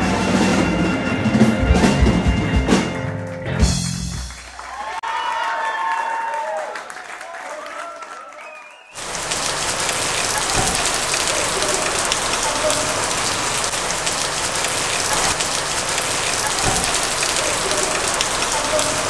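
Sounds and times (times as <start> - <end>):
heavy rain pattering: 9.0 - 19.0.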